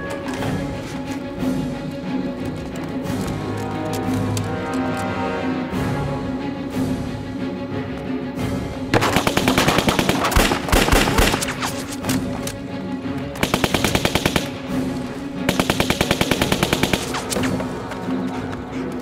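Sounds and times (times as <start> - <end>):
background music: 0.0 - 19.0
submachine gun automatic fire: 9.0 - 11.6, 13.4 - 14.5, 15.5 - 17.5.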